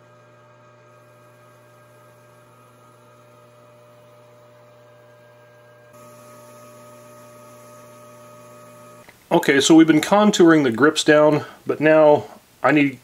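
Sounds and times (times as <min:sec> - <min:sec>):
lathe motor humming: 0:00.0 - 0:09.1.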